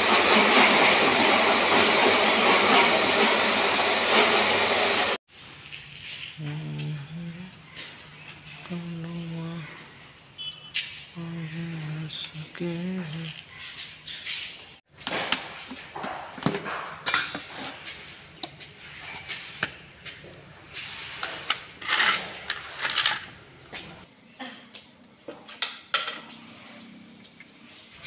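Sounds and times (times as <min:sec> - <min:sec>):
paint scraping: 0:17.7 - 0:22.9.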